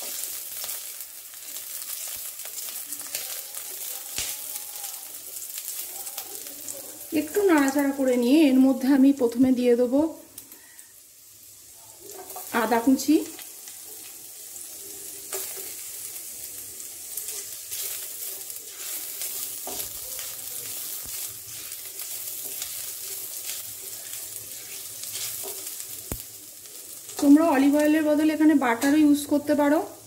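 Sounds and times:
food sizzling in oil: 0.0s - 30.0s
spatula scraping pan: 17.3s - 25.8s.

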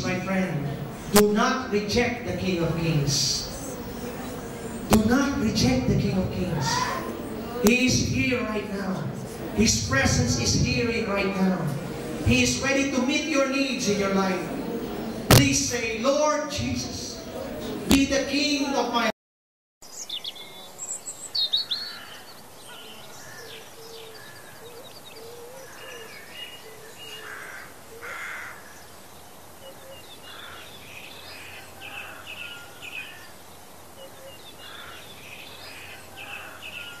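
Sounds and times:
birds chirping and calling: 20.0s - 37.0s.

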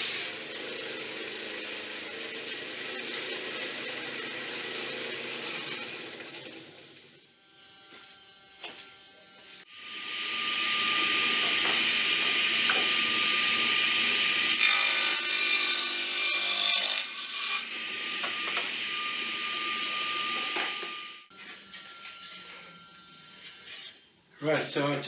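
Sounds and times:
saw blade cutting wood: 0.0s - 6.2s, 7.4s - 21.4s
table saw motor running: 9.7s - 21.3s.

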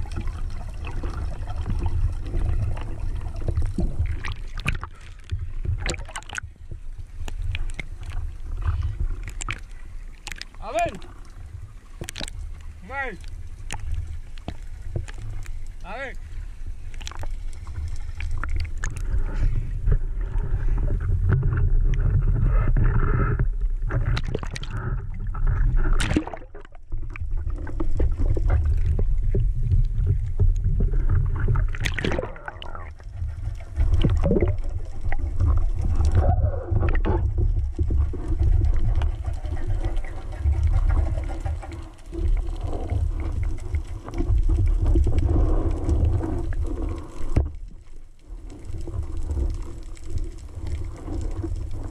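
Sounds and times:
muffled underwater rumble: 0.0s - 51.9s.

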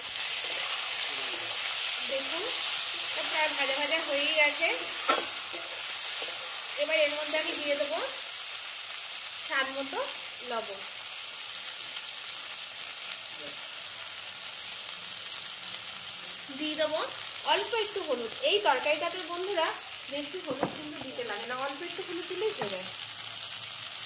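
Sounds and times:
metal spatula scraping: 0.0s - 7.6s
vegetables sizzling in hot oil: 0.0s - 24.0s.

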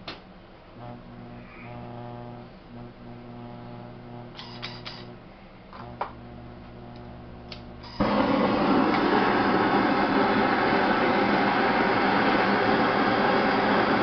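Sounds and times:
potter's wheel motor humming: 0.8s - 14.0s
torch clicks: 6.9s - 8.1s
torch flame hissing: 7.8s - 14.0s.

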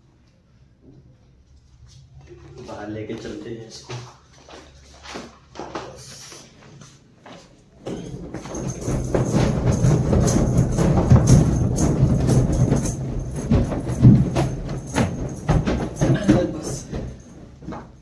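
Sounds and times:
music with percussive beat: 7.9s - 16.7s.

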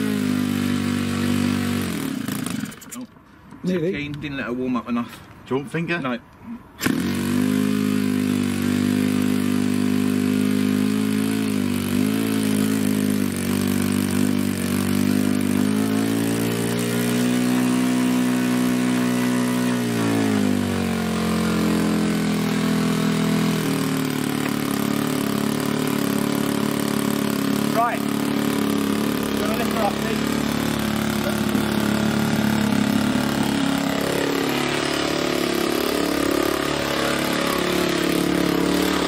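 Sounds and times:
model aircraft engine revving: 0.0s - 3.1s, 6.8s - 39.0s.

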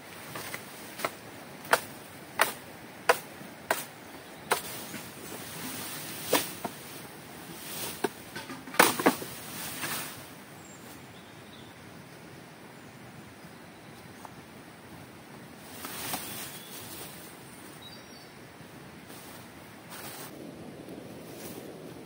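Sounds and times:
blade chopping bamboo: 0.4s - 3.9s.

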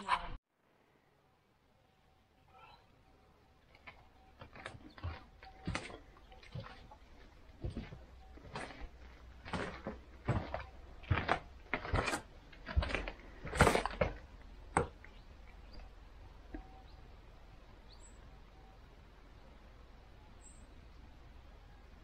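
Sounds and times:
irregular knocks and thuds: 3.8s - 15.1s
faint high chirps: 15.1s - 17.1s.

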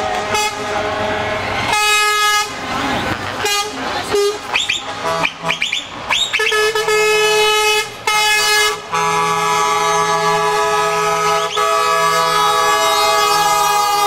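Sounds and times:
truck air horns blowing: 0.0s - 2.6s, 3.4s - 14.0s.

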